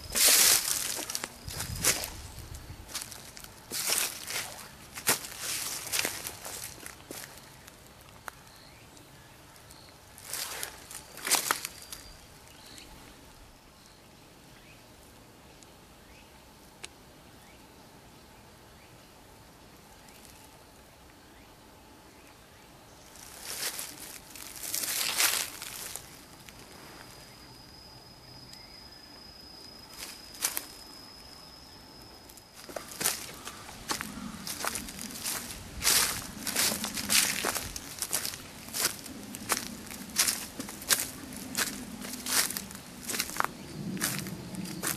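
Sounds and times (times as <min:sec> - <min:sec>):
footsteps crunching through dry leaves: 0:00.0 - 0:08.4, 0:10.1 - 0:12.7, 0:23.1 - 0:27.4, 0:32.5 - 0:44.9
high-pitched insect call: 0:00.0 - 0:14.8, 0:22.2 - 0:44.9
faint high bird chirps: 0:08.3 - 0:14.9, 0:21.3 - 0:36.2.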